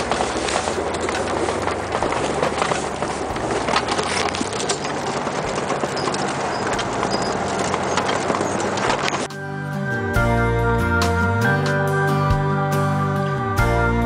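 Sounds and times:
knocks and rattles: 0:00.0 - 0:09.4
wind and road noise: 0:00.0 - 0:09.4
vehicle engine running: 0:00.0 - 0:14.0
background music: 0:09.0 - 0:14.0.

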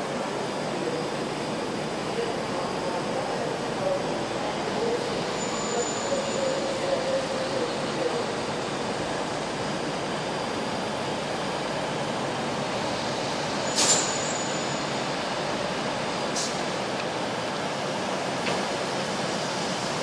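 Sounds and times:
train rumbling along track: 0:00.0 - 0:20.0
wheel squealing on rail: 0:04.8 - 0:08.2, 0:13.6 - 0:15.0.

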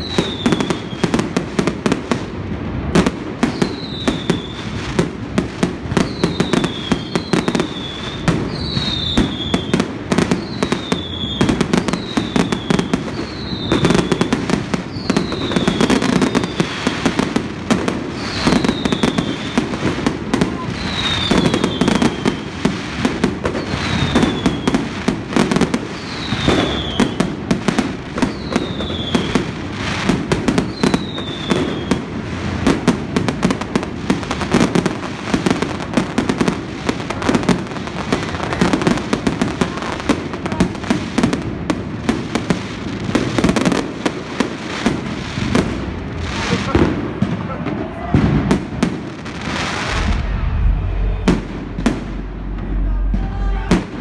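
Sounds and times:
high falling firework whistle: 0:00.0 - 0:01.1, 0:03.4 - 0:04.8, 0:06.0 - 0:17.2, 0:18.1 - 0:27.4, 0:28.2 - 0:29.6, 0:30.5 - 0:32.2, 0:47.7 - 0:54.0
fireworks bursts and crackles: 0:00.0 - 0:54.0.

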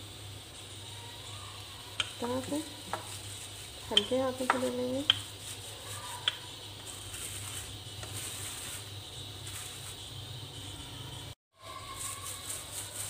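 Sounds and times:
plastic sheet rustling: 0:02.2 - 0:10.2, 0:11.6 - 0:13.0.

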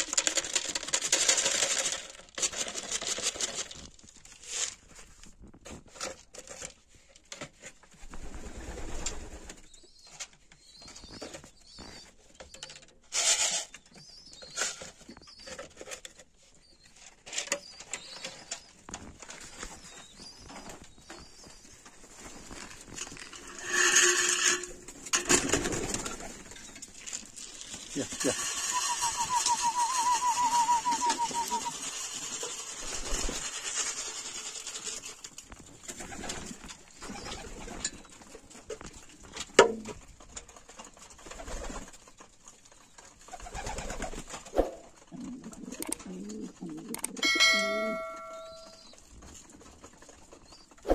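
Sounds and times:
pigeons cooing: 0:28.0 - 0:31.9, 0:45.1 - 0:48.6.

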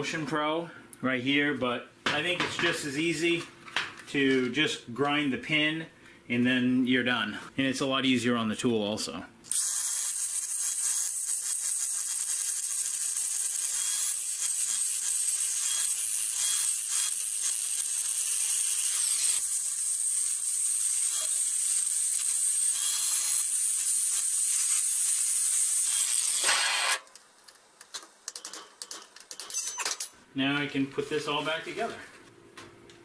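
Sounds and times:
power grinder grinding metal: 0:09.5 - 0:27.0.

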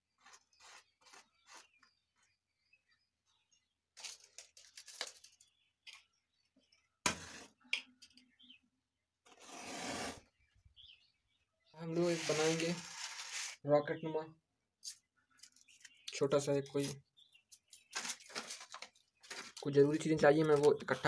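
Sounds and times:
paper and matchboxes rustling: 0:04.0 - 0:05.6, 0:12.0 - 0:13.6, 0:15.4 - 0:16.1, 0:16.7 - 0:21.0.

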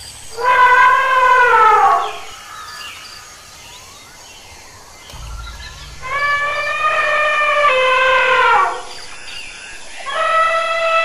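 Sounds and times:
elephant trumpeting: 0:06.0 - 0:08.9.

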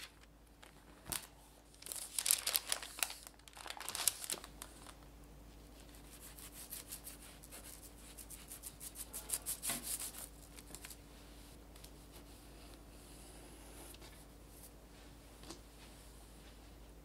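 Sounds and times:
baking paper rustle: 0:00.0 - 0:12.3.

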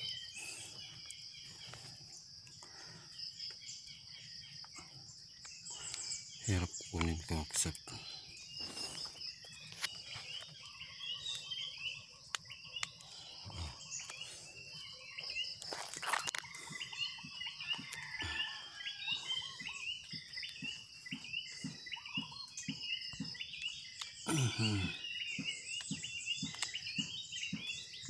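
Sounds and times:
short chirping calls: 0:00.0 - 0:02.6, 0:03.3 - 0:28.0
night insects trilling: 0:00.0 - 0:28.0
hands rustling through twigs and leaves: 0:13.8 - 0:18.2.

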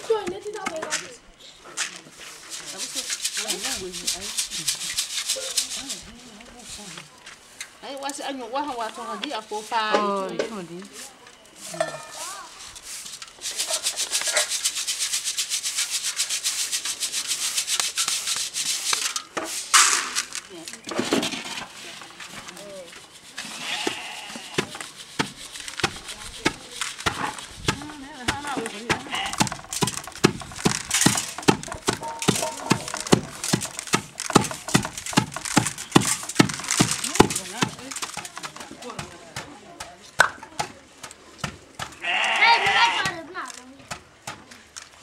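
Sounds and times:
grain rattling in a sieve: 0:01.8 - 0:07.2, 0:10.8 - 0:45.0
pestle pounding in wooden mortar: 0:23.8 - 0:44.6.

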